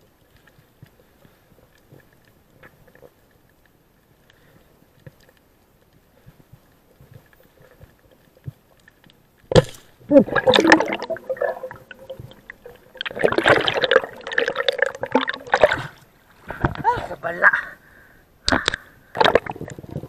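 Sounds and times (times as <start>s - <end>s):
bubbling rushing water: 10.1s - 16.2s, 18.5s - 20.0s.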